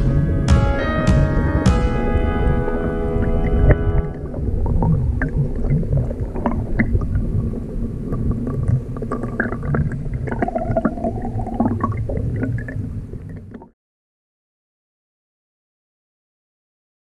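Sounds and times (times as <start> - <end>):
underwater river rumble: 0.0 - 13.7
underwater clicks and ticks: 4.0 - 13.7.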